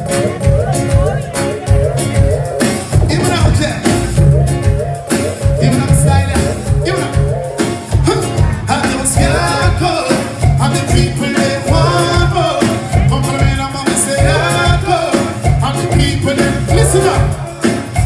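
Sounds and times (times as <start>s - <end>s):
live reggae band: 0.0s - 18.0s
man singing: 2.9s - 4.4s, 5.4s - 18.0s.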